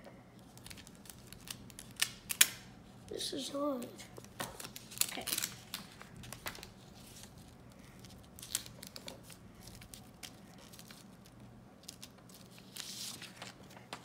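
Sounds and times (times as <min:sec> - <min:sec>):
paper crinkling and rustling: 0:00.4 - 0:02.6, 0:04.2 - 0:14.0
paper crackles: 0:00.4 - 0:02.7, 0:03.8 - 0:14.0.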